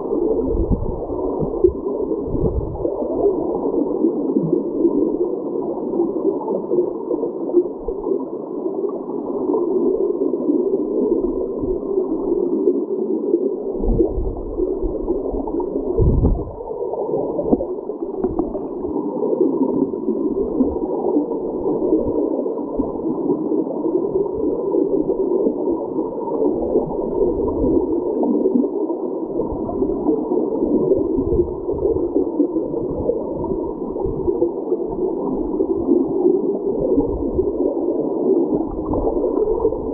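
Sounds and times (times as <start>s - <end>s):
muffled underwater water rushing: 0.0s - 39.9s
low thumps: 16.0s - 16.6s.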